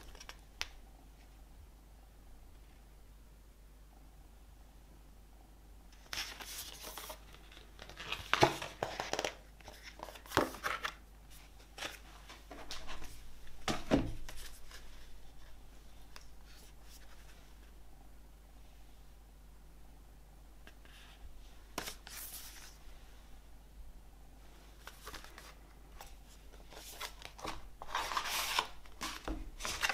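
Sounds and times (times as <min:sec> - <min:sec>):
paper rustling and crinkling: 0:06.0 - 0:17.7, 0:24.8 - 0:29.9.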